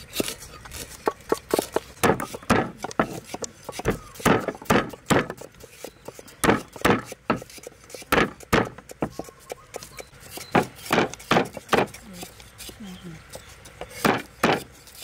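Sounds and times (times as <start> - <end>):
stone pestle pounding on wooden board: 1.0 - 5.5, 6.4 - 9.9, 10.5 - 12.0, 13.8 - 14.7.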